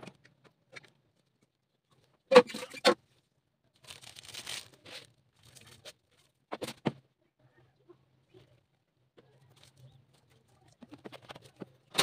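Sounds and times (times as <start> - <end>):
soft rustling handling noise: 3.0 - 6.5, 8.2 - 12.0.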